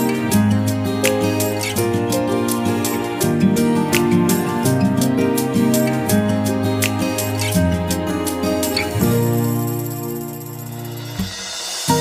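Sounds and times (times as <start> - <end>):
background music chords: 0.0 - 12.0
thin hiss: 5.4 - 12.0.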